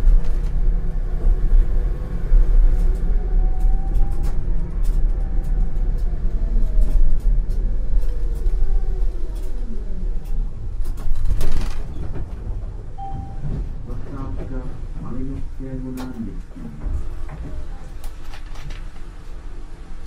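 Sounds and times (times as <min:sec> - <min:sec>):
tram rumbling over rails: 0:00.0 - 0:20.0
brief beep: 0:13.0 - 0:13.5.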